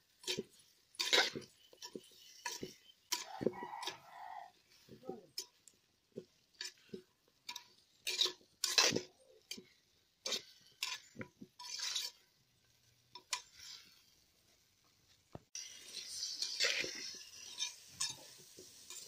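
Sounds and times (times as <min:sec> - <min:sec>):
spoon scraping clay pot: 0:00.2 - 0:05.6, 0:06.2 - 0:12.2, 0:15.8 - 0:19.0.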